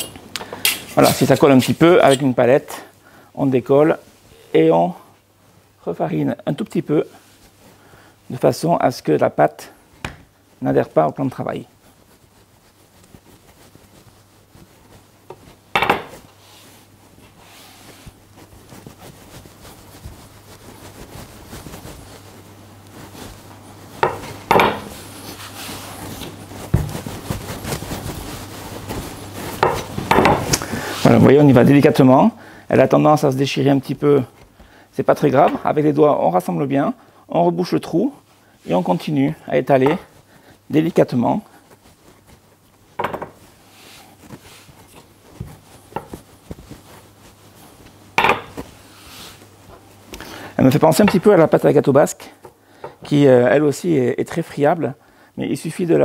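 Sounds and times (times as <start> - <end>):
rolling pin rolling pastry dough: 3.5 - 54.6
rolling pin knocks and taps: 15.3 - 16.2, 24.0 - 24.9, 29.6 - 30.6, 43.0 - 43.4
sharp knocks: 15.8 - 16.1, 24.0 - 24.9.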